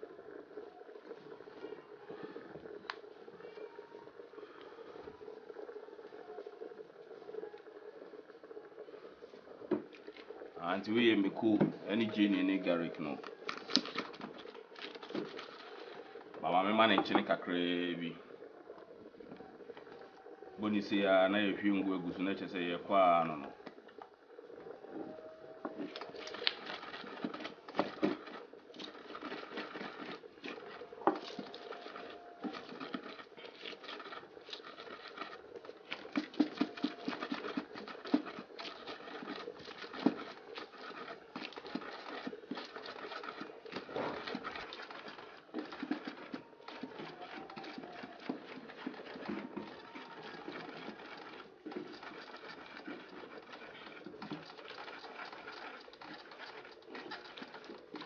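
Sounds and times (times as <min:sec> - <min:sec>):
pestle grinding in bowl: 0:25.6 - 0:58.0.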